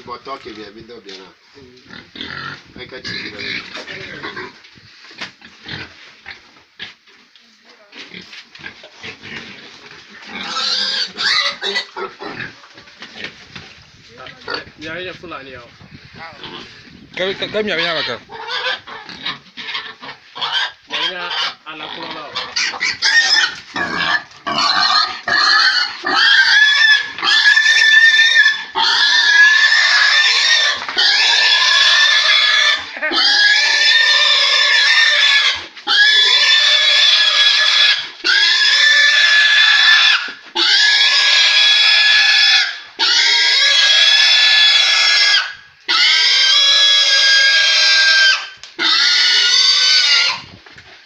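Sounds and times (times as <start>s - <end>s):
pig squealing and screaming: 10.2s - 12.9s, 17.4s - 50.6s.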